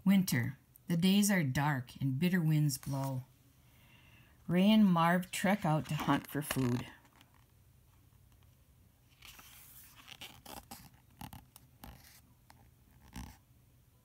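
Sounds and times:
paper pages rustling: 0:05.3 - 0:07.6, 0:08.3 - 0:13.4.

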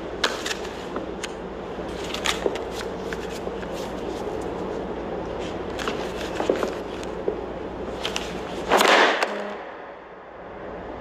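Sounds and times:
paper tile slapping ground: 0:05.4 - 0:09.4.

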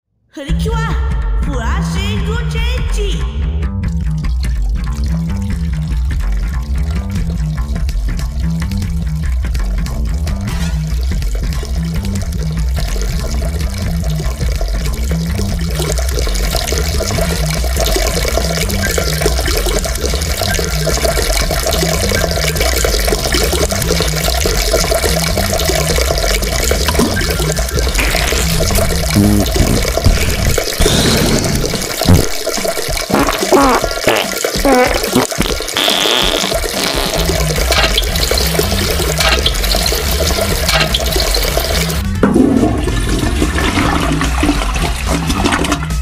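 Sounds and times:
low pulsing beat: 0:00.5 - 0:21.1
toilet flush rushing water: 0:10.3 - 0:46.0.

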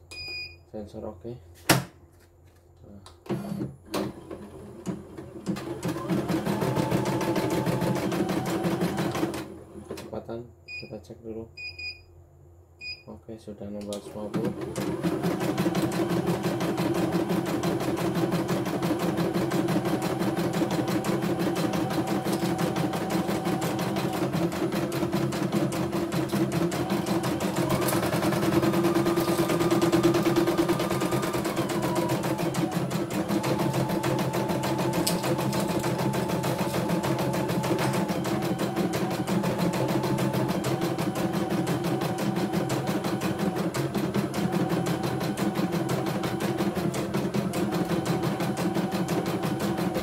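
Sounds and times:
motor hum: 0:19.4 - 0:50.0.

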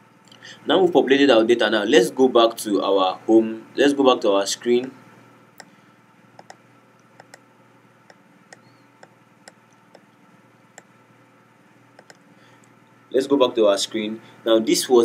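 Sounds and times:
room hum: 0:00.0 - 0:15.0
computer mouse clicks: 0:06.4 - 0:07.4, 0:08.1 - 0:10.1, 0:12.0 - 0:12.2.

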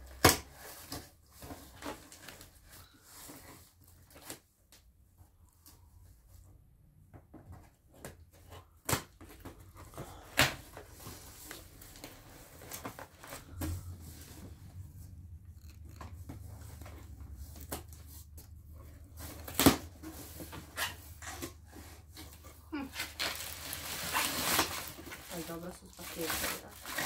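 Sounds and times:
cardboard rustling: 0:07.3 - 0:27.0
packing tape ripping: 0:22.8 - 0:25.2.

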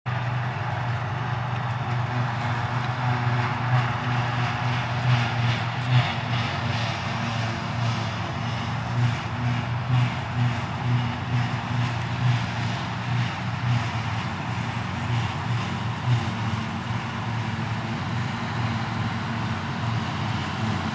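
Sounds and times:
forage harvester engine drone: 0:00.1 - 0:20.9
rushing noise of chopping grass: 0:00.1 - 0:20.9.

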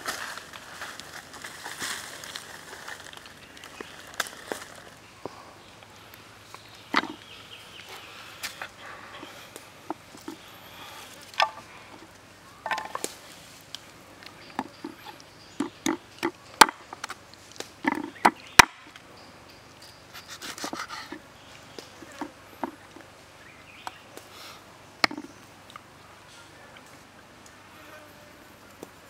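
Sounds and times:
cleaver chopping on wooden block: 0:17.9 - 0:18.8.

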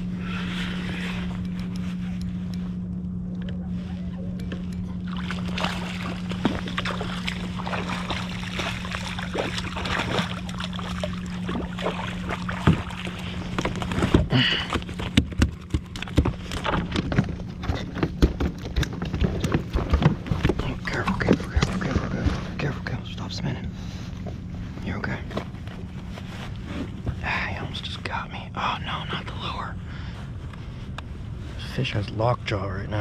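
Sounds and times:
fish splashing at surface: 0:05.1 - 0:14.0.

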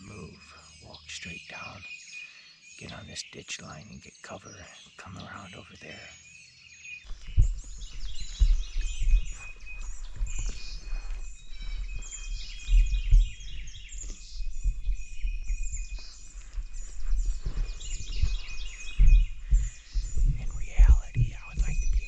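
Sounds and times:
songbirds chirping: 0:00.0 - 0:22.0
footsteps thudding: 0:07.1 - 0:22.0.

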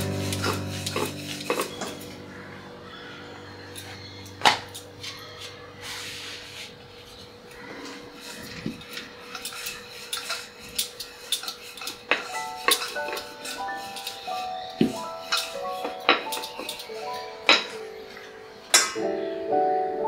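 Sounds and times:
hands rubbing dough: 0:00.0 - 0:02.2, 0:05.0 - 0:18.3.

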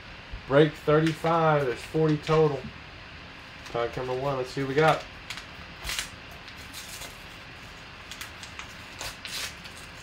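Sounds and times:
paper envelope tearing: 0:05.8 - 0:07.4, 0:08.0 - 0:10.0.

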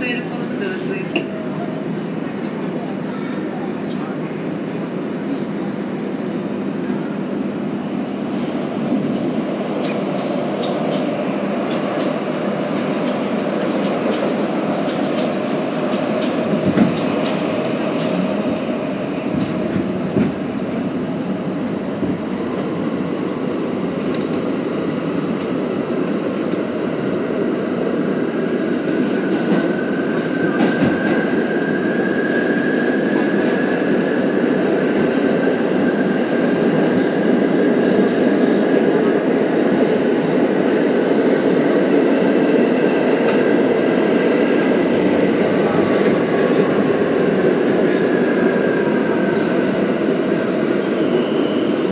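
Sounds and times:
train wheels rumbling on rails: 0:00.0 - 0:51.9
rail joint clicks: 0:08.4 - 0:20.6, 0:21.6 - 0:25.6, 0:26.3 - 0:26.7, 0:43.2 - 0:43.6.

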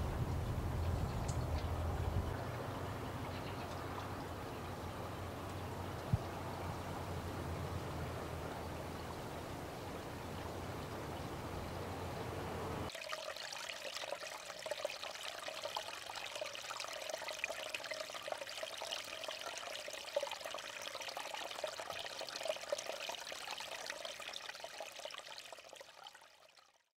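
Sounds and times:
low rumble: 0:00.0 - 0:02.6
meltwater trickling: 0:12.8 - 0:26.7.

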